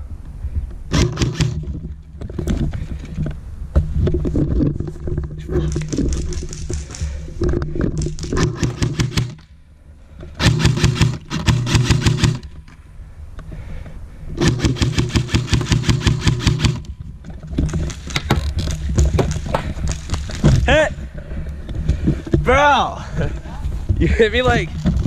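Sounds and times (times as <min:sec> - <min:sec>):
airsoft rifle full-auto bursts: 0:00.9 - 0:01.6, 0:08.4 - 0:09.4, 0:10.4 - 0:12.5, 0:14.4 - 0:16.9.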